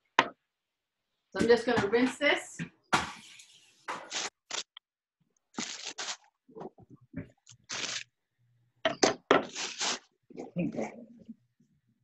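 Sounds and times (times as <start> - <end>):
lettuce leaves crunching: 5.5 - 6.3, 7.5 - 8.1, 9.5 - 10.0.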